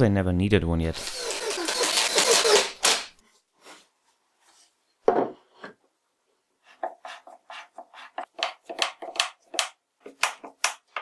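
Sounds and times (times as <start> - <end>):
screwdriver turning screw: 1.0 - 3.1.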